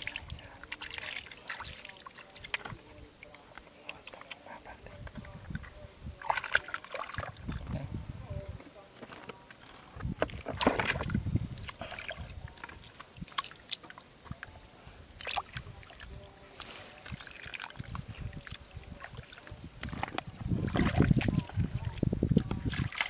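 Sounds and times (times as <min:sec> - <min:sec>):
muddy water sloshing and splashing: 0:00.0 - 0:07.9, 0:10.0 - 0:23.0
wet mud squelching: 0:05.5 - 0:07.8, 0:15.1 - 0:23.0.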